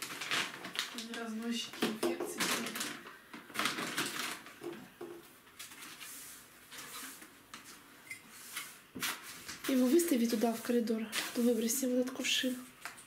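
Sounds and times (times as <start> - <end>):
plastic bags rustling: 0.0 - 13.0
broom swishing across linoleum: 5.7 - 12.8.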